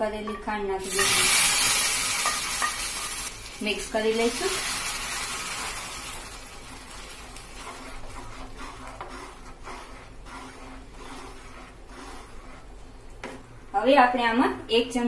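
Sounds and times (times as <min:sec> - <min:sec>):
hot sugar sizzling: 0:00.8 - 0:12.8
spatula scraping and sloshing: 0:06.7 - 0:13.5.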